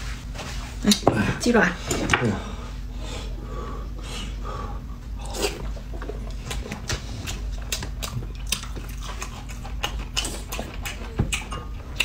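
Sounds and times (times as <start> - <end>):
people chewing and crunching: 5.0 - 12.0.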